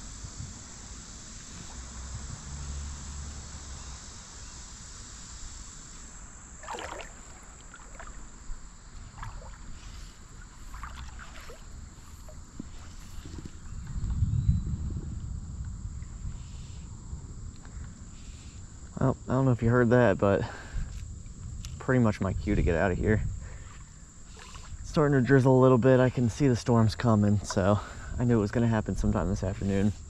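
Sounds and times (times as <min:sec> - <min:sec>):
stream water lapping: 0:06.5 - 0:13.7, 0:23.6 - 0:25.4
wind on microphone: 0:08.5 - 0:19.3, 0:20.5 - 0:25.3.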